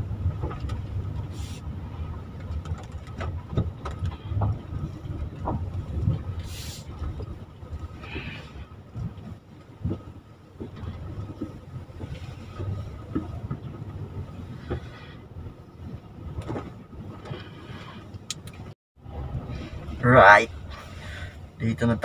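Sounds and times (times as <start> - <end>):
road and engine rumble: 0.0 - 22.0
light knocks and bumps: 2.1 - 6.4.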